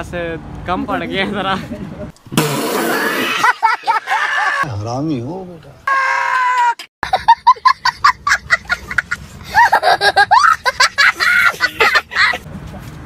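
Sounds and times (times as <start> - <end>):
child giggling: 7.0 - 12.4.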